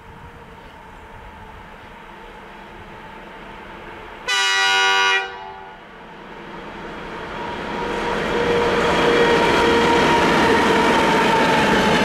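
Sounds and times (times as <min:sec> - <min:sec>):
approaching train: 0:00.0 - 0:12.0
locomotive horn blast: 0:04.3 - 0:05.8.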